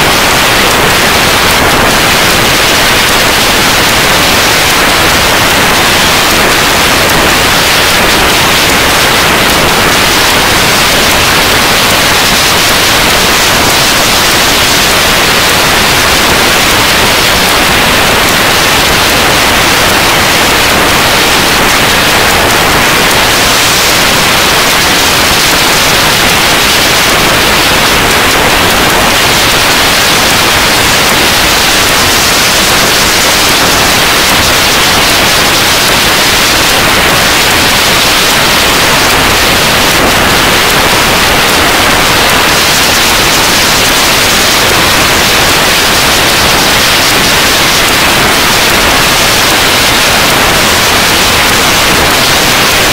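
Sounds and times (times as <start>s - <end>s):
loud static hiss: 0.0s - 52.9s.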